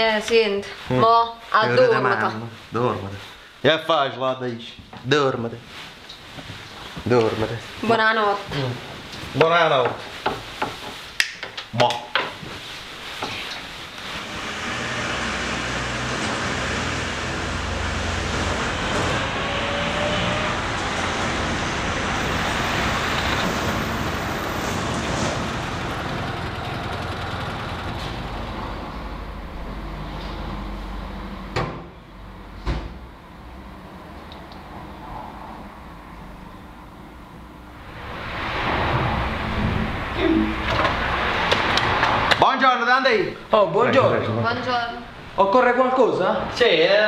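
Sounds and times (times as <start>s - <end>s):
small car engine running: 14.2s - 29.3s.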